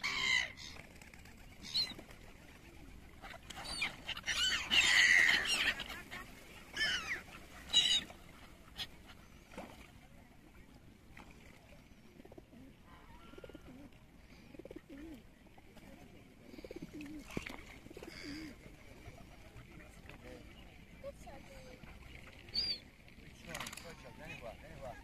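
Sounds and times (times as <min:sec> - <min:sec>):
gulls calling: 0:02.7 - 0:09.3.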